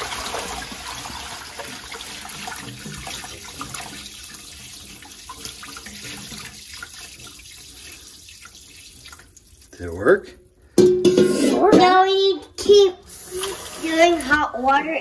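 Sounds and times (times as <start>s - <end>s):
hot water splashing onto ice: 0.0s - 10.4s, 13.1s - 14.8s.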